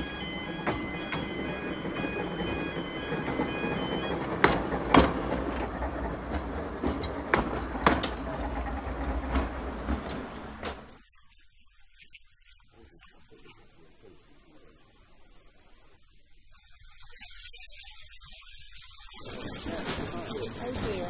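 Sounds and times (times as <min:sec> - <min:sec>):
wheels clacking over rail joints: 0:00.0 - 0:11.0, 0:19.3 - 0:21.0
tram rumble: 0:00.0 - 0:11.1, 0:19.3 - 0:21.0.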